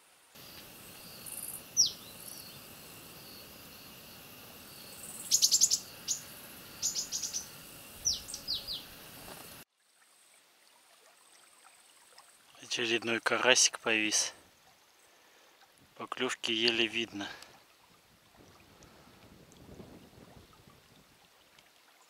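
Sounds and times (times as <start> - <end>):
steady high hiss: 0.0 - 9.7
small birds chirping: 0.4 - 9.6
falling bird whistle: 5.2 - 6.2.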